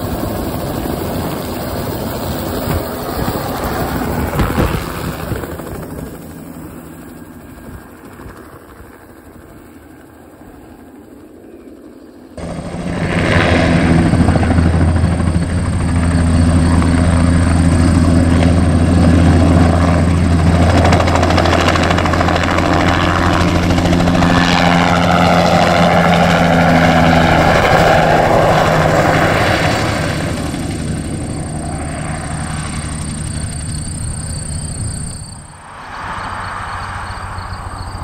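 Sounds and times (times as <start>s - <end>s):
helicopter rotor beating: 0.0s - 38.0s
high-pitched helicopter whine: 0.0s - 38.0s.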